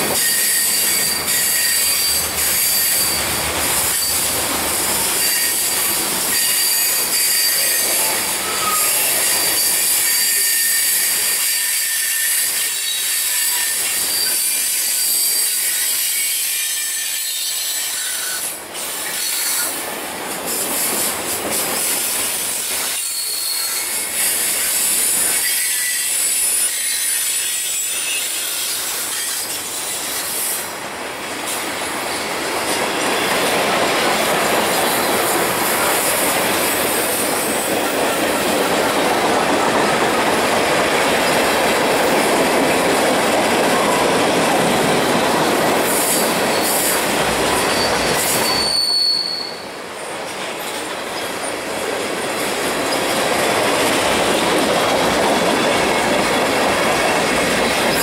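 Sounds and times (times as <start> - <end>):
high wheel squeal: 0.0 - 19.8, 22.5 - 30.6, 44.9 - 49.8
train wheels clattering on rails: 0.0 - 58.0.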